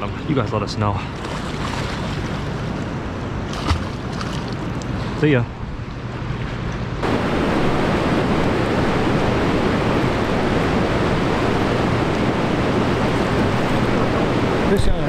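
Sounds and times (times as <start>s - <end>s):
steady rushing noise: 5.0s - 15.0s.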